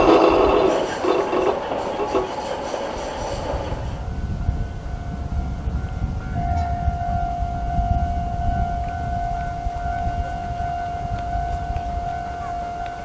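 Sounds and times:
level crossing alarm tone: 0:04.2 - 0:13.0.

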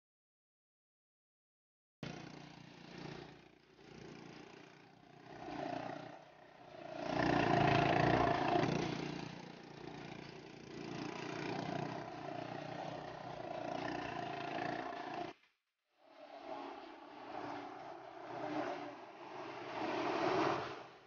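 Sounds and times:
quad bike engines passing: 0:02.0 - 0:15.4, 0:16.1 - 0:21.0.

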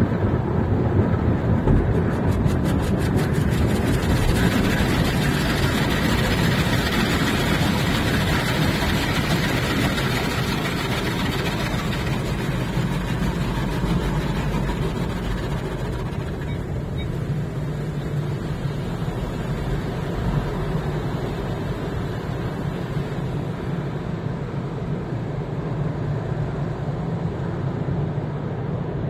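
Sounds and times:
low machinery hum: 0:00.0 - 0:29.0
water spray on car: 0:01.8 - 0:16.2.

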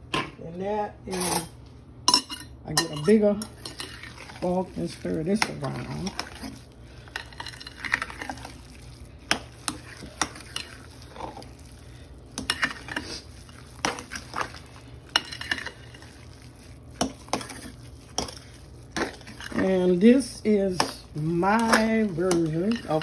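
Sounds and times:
fork scraping glass bowl: 0:02.3 - 0:04.5, 0:12.4 - 0:16.2, 0:17.0 - 0:19.6.

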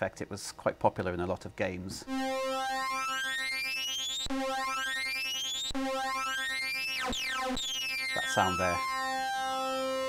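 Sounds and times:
synthesiser held note restruck: 0:02.0 - 0:10.0.

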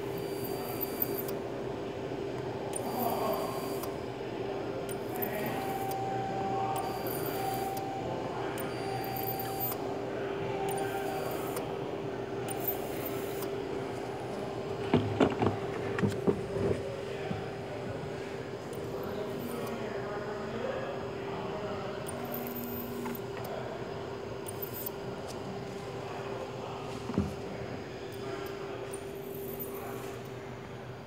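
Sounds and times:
hot-air gun blower humming: 0:00.0 - 0:30.9
knocks and clatters: 0:14.8 - 0:16.8.

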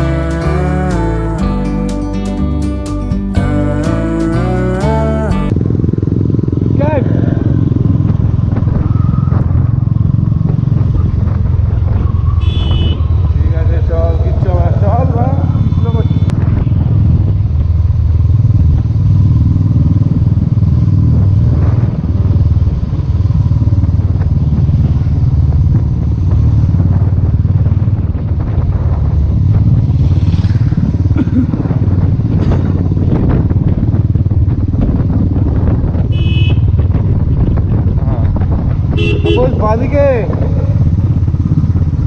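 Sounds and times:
motorcycle engine running: 0:00.0 - 0:42.0
wind rumble on microphone: 0:05.1 - 0:42.0
horn toot: 0:12.4 - 0:13.1, 0:36.1 - 0:36.7, 0:38.9 - 0:39.6.

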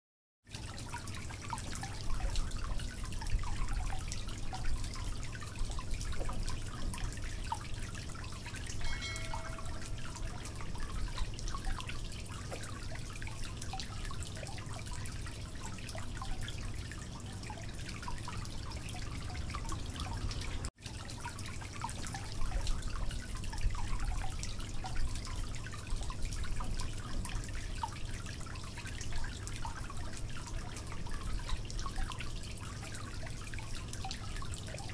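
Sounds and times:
faint clicks and taps of cookware: 0:08.6 - 0:11.6
short ringing ping: 0:08.8 - 0:10.4.

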